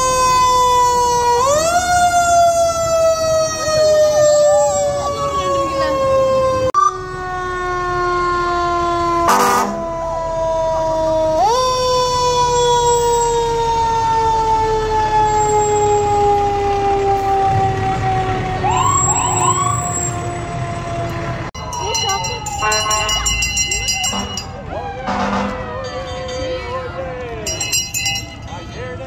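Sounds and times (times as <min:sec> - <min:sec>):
fire truck siren: 0:00.0 - 0:29.0
short rising siren chirps: 0:06.8 - 0:07.3, 0:18.6 - 0:21.2
loud horn blast: 0:09.2 - 0:10.0, 0:25.0 - 0:25.7.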